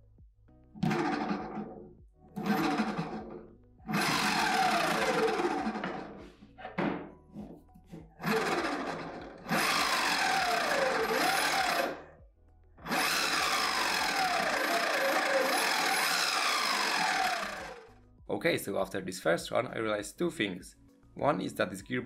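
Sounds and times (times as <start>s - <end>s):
electric motor whine: 3.9s - 6.1s, 8.2s - 12.0s, 12.9s - 17.9s.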